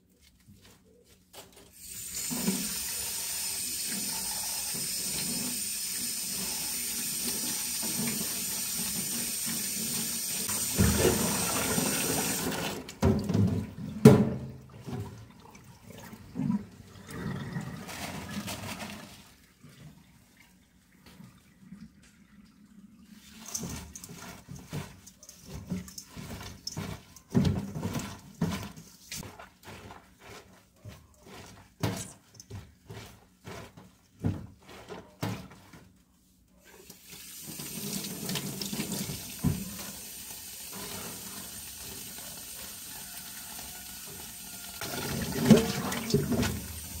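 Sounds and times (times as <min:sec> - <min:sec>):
tap water running into sink: 0:01.8 - 0:15.6, 0:36.8 - 0:47.0
splashing and clatter of bowl: 0:17.8 - 0:21.2, 0:23.1 - 0:35.7, 0:37.4 - 0:40.0, 0:40.7 - 0:47.0.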